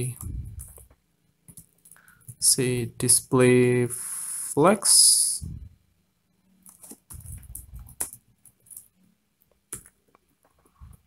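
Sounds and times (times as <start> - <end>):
computer keyboard keystrokes: 6.7 - 8.9, 9.7 - 10.0.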